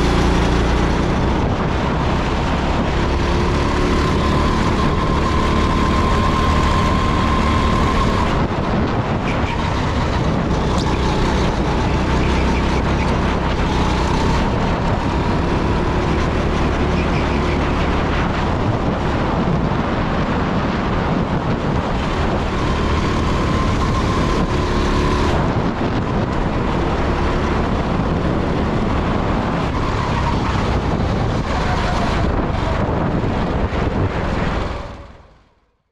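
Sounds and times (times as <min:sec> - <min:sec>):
go-kart engine at high revs: 0:00.0 - 0:35.2
wind rushing over microphone: 0:00.0 - 0:35.6.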